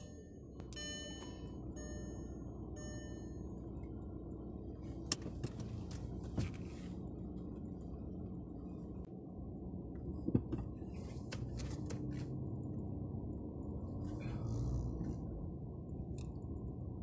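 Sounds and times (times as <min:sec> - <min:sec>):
car engine and road hum: 0:00.0 - 0:17.0.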